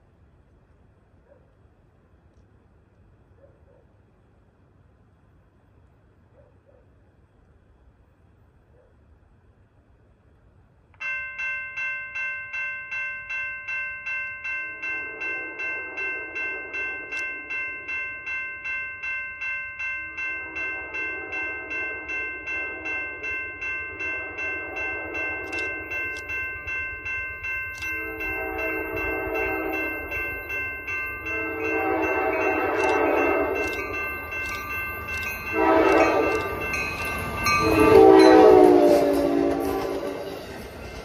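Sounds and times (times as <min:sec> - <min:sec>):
railroad crossing bell ringing: 0:11.0 - 0:41.0
train horn blasts: 0:14.7 - 0:17.8, 0:20.2 - 0:26.2, 0:27.8 - 0:34.6, 0:35.4 - 0:40.5.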